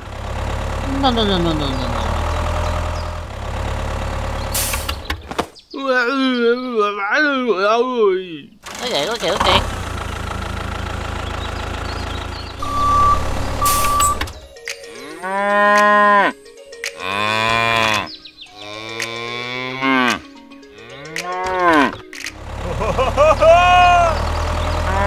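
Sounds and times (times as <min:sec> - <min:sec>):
engine idling: 0:00.0 - 0:05.2, 0:08.6 - 0:14.5, 0:22.3 - 0:25.0
short beeps: 0:12.6 - 0:14.3
cow mooing: 0:15.0 - 0:16.4, 0:17.0 - 0:22.1, 0:23.5 - 0:25.0.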